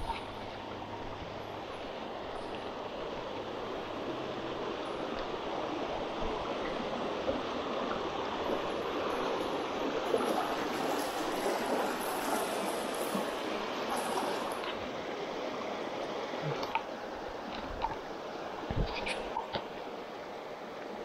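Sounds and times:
water rushing along stone channel: 0.0s - 21.0s.

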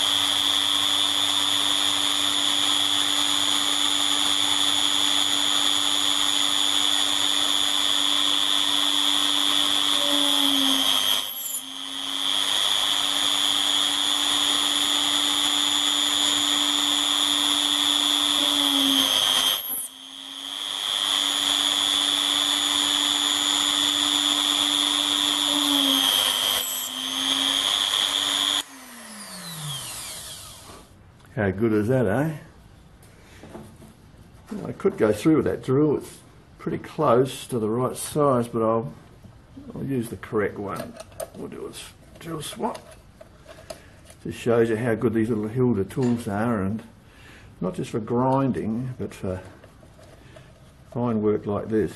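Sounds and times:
rotary tool whining: 0.0s - 31.0s.

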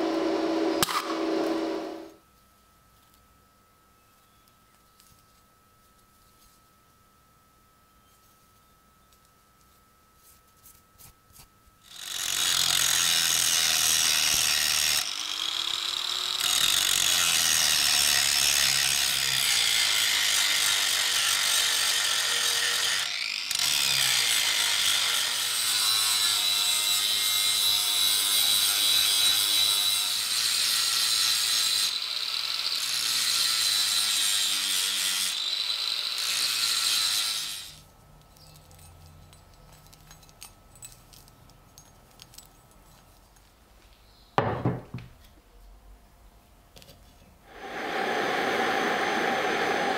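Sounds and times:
angle grinder grinding metal: 0.0s - 2.2s, 11.9s - 37.8s.

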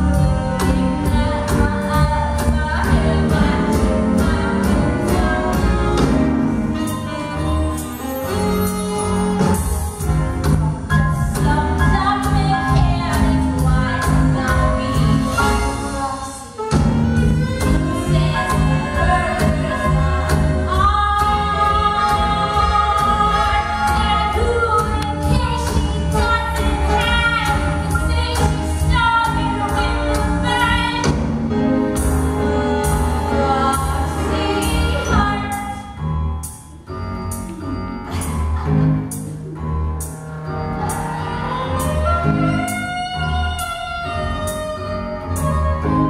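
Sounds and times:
woman singing: 0.0s - 6.2s, 10.0s - 31.2s, 32.4s - 36.0s.

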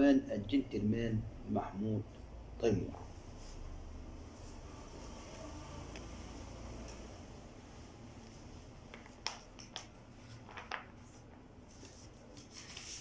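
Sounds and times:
paper pages rustling: 8.9s - 13.0s.

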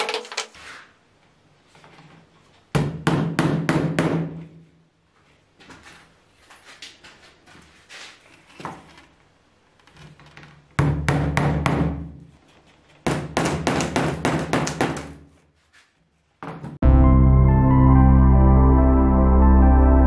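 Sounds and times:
hammer tapping nails into board: 13.1s - 15.2s.

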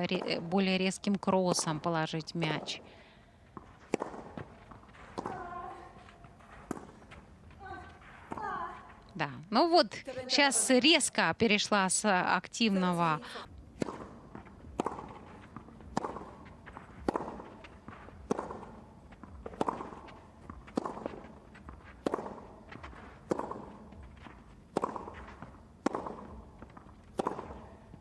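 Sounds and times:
tennis ball hit by racket: 3.5s - 7.2s, 13.7s - 28.0s.

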